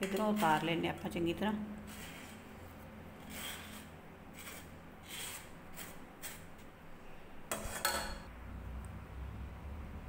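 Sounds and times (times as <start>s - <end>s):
spoon scraping wire-mesh sieve: 0.0s - 0.9s, 1.8s - 2.4s, 3.2s - 6.7s.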